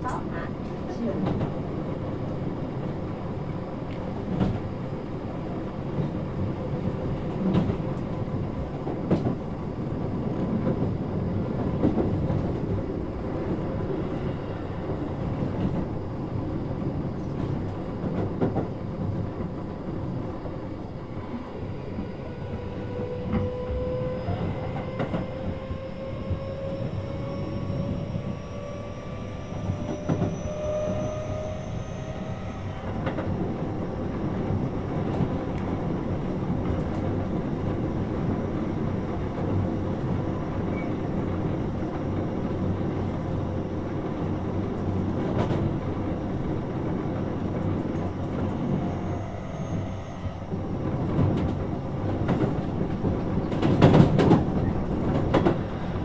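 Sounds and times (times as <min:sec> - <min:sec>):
train running noise inside car: 0:00.0 - 0:56.0.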